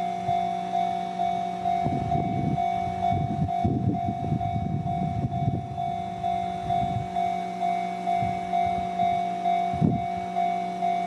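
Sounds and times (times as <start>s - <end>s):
railroad crossing warning bell: 0.0s - 11.0s
rough low rumble: 1.6s - 7.3s.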